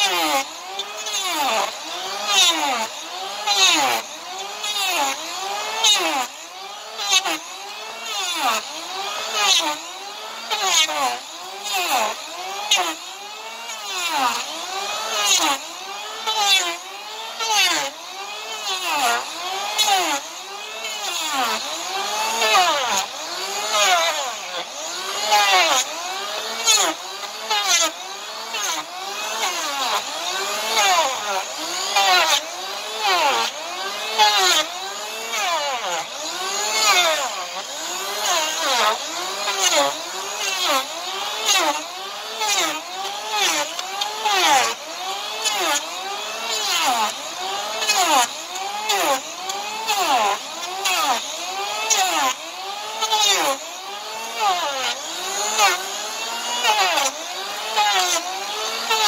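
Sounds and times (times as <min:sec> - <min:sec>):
electric hand planer whining: 0:00.0 - 0:59.0.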